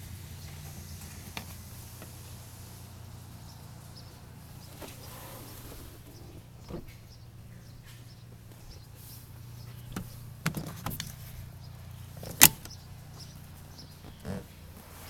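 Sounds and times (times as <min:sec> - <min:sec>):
seat lid clicks and knocks: 0:06.1 - 0:07.0, 0:09.8 - 0:11.2, 0:12.2 - 0:12.8.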